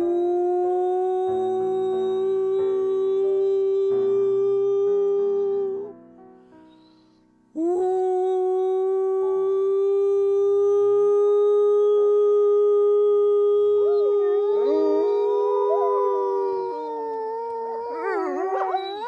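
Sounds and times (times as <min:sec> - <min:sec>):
woman howling: 0:07.6 - 0:19.0
wolves howling: 0:12.5 - 0:19.0.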